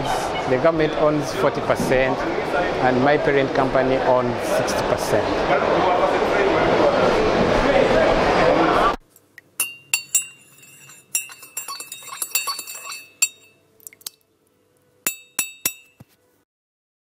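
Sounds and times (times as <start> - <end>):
teaspoon clinking in china cup: 9.6 - 14.2, 15.0 - 16.0.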